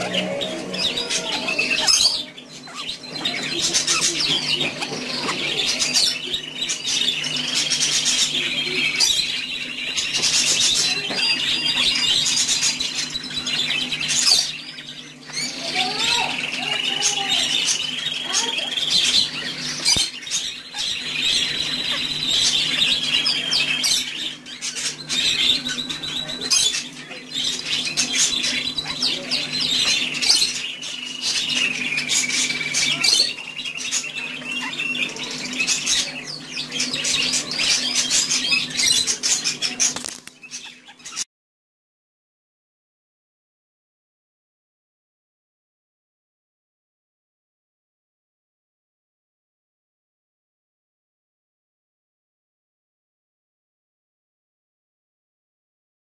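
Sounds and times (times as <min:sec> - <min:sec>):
budgerigars squawking and chattering: 0:00.0 - 0:41.3.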